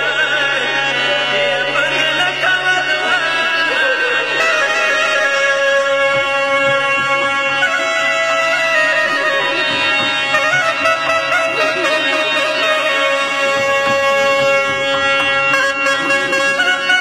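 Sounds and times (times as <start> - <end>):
reedy wind instrument melody: 0.0 - 17.0
held drone note: 4.4 - 17.0.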